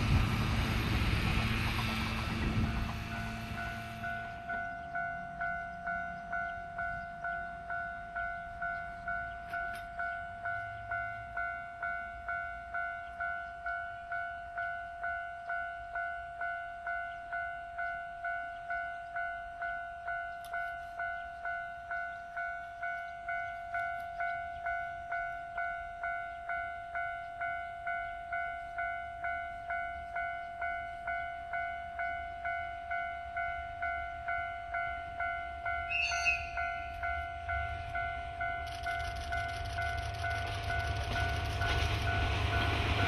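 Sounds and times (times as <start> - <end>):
diesel locomotive rumble: 0.0 - 13.2, 33.4 - 43.0
level crossing warning bell: 0.0 - 43.0.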